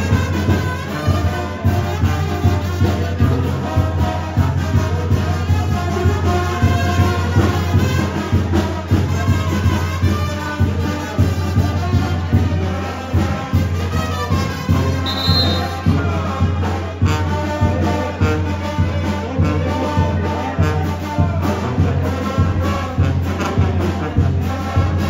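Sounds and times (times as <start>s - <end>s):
brass music with bass and beat: 0.0s - 25.0s
brief high tone: 15.1s - 15.9s.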